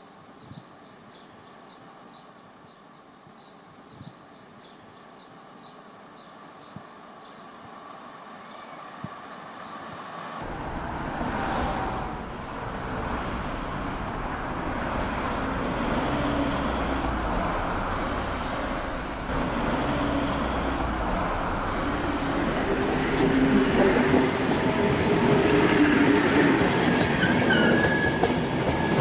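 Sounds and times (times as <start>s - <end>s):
vehicle rumble: 10.4s - 23.9s.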